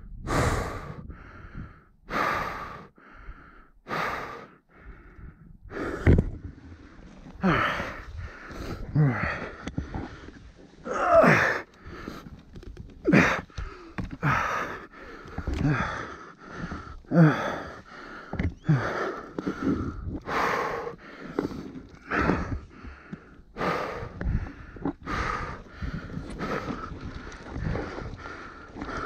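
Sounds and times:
person gasping for breath: 0.2 - 6.4, 7.3 - 12.4, 13.0 - 29.0
voiced groan: 10.8 - 11.7.

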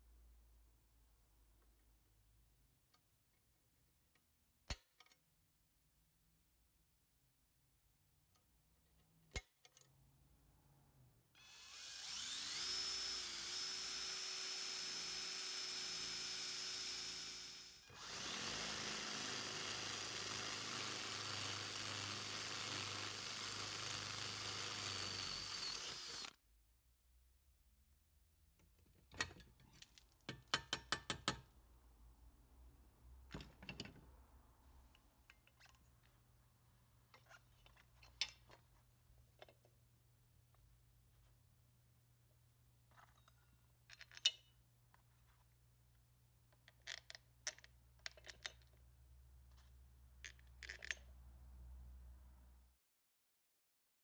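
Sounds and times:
electric drill whining: 11.4 - 26.4.

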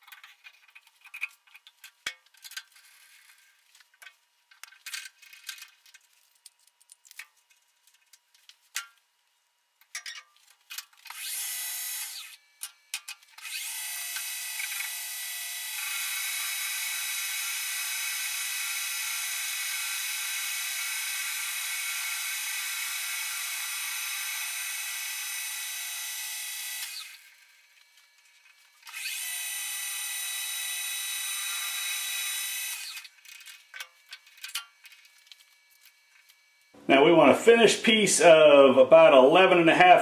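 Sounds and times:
drill cutting into steel bar: 11.1 - 12.4, 13.4 - 27.5, 28.8 - 33.1
metal lathe spindle whining: 28.8 - 34.5.

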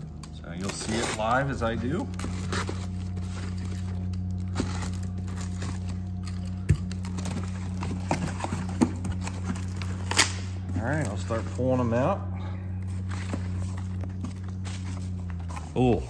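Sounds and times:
steady low hum: 0.0 - 16.0
knife slitting packing tape: 0.6 - 1.4
cardboard flaps rustling: 0.6 - 11.6.

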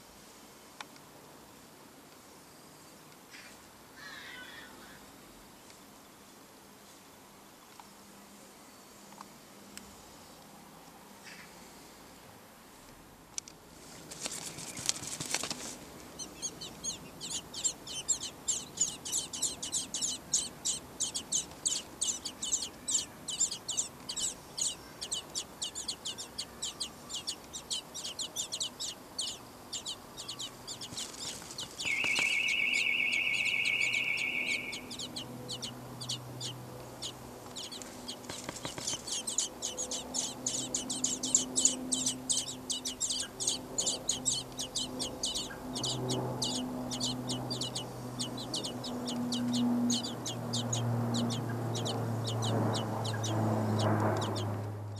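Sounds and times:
nestlings high chirps: 14.0 - 54.6.

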